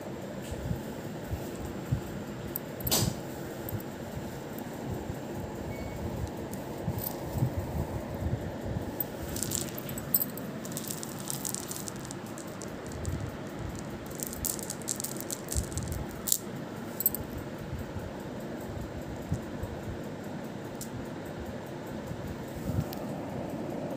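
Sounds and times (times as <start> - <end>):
beads clinking and rattling: 5.9 - 7.5, 8.9 - 17.3.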